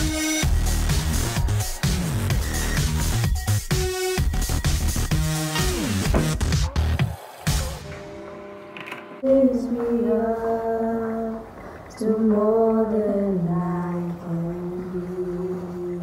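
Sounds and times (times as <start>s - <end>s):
woman singing unaccompanied: 9.2s - 16.0s.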